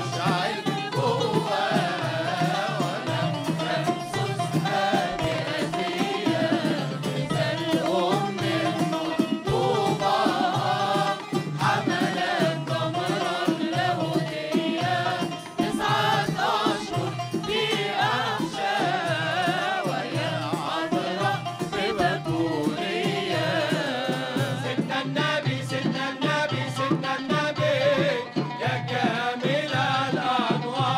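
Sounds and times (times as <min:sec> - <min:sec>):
choir singing a hymn: 0:00.0 - 0:30.9.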